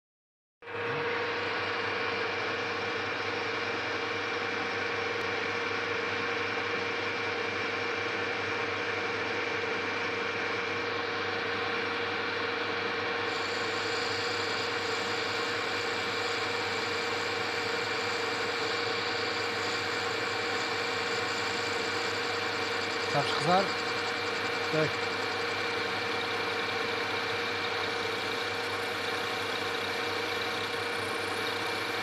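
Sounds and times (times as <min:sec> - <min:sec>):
metal lathe whining: 0:07.0 - 0:32.0.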